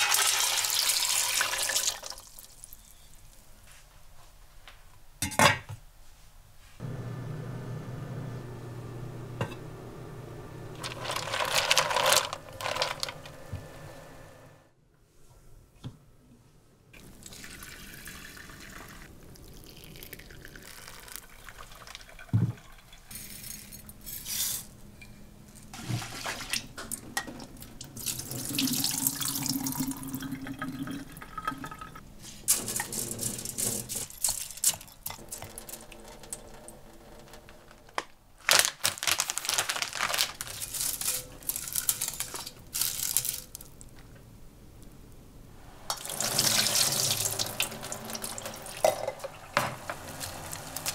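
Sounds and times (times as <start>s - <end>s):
kitchen utensils clinking: 10.8s - 13.5s, 22.0s - 27.6s, 31.4s - 36.6s, 40.4s - 43.7s, 45.9s - 50.9s
tap water running into metal sink: 45.9s - 50.9s.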